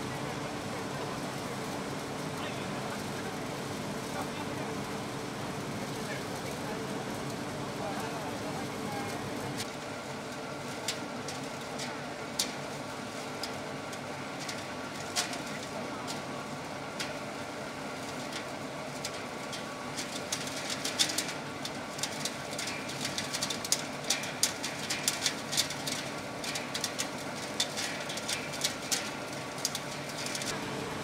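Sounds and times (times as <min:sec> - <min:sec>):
machinery humming with faint whine: 0:00.0 - 0:31.0
pellets clattering on sheet metal: 0:19.0 - 0:30.6.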